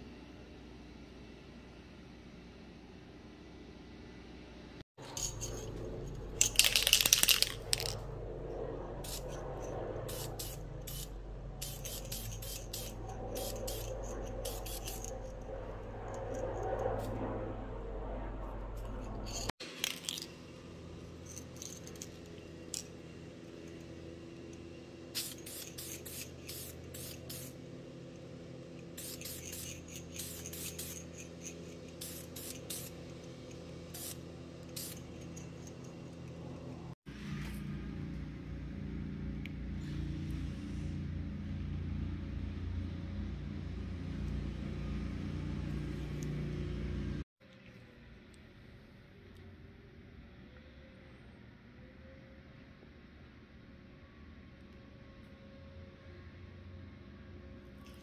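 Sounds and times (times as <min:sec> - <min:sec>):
low steady hum: 0:00.0 - 0:58.0
aerosol can spraying: 0:10.1 - 0:15.2, 0:25.2 - 0:27.6, 0:28.9 - 0:33.0, 0:33.9 - 0:35.3.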